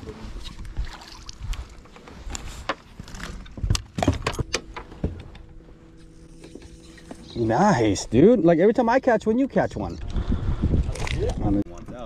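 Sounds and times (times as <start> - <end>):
knocks and thumps on boat: 2.6 - 5.5.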